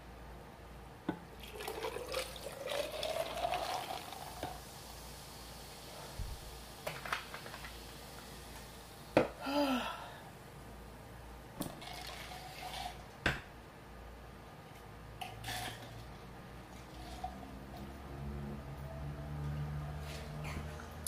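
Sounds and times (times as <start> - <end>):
liquid pouring into glass: 1.4 - 4.6, 11.6 - 13.0, 16.7 - 17.4.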